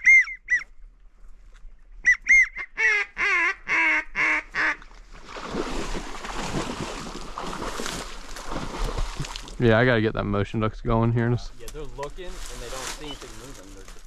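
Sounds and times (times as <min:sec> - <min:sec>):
goose honking: 0:02.0 - 0:04.8
rustling: 0:11.4 - 0:14.0.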